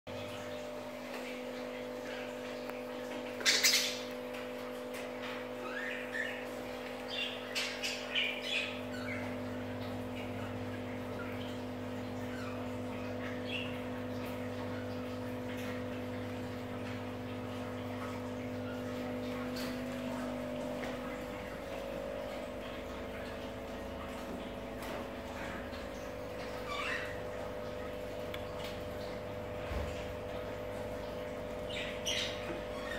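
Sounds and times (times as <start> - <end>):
budgerigars chirping: 3.4 - 4.1, 31.7 - 32.9.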